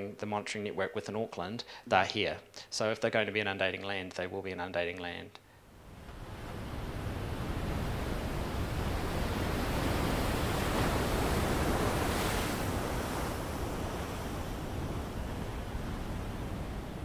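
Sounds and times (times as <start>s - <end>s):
ocean surf wave: 5.7s - 17.0s.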